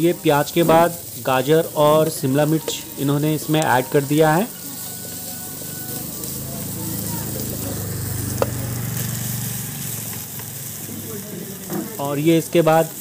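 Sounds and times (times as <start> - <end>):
vegetables sizzling in butter: 0.0 - 13.0
wooden spatula stirring: 0.4 - 7.7, 10.0 - 10.9.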